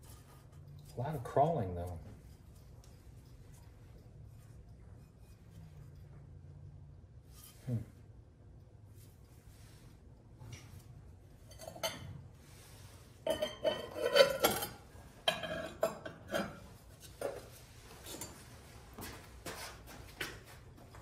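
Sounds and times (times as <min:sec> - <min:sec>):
ceramic bowls clinking: 0:11.4 - 0:12.2, 0:13.2 - 0:17.5.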